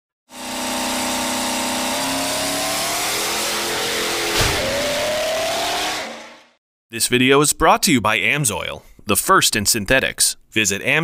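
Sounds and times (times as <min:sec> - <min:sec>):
engine running and revving: 0:00.3 - 0:06.6
thud: 0:04.3 - 0:05.2.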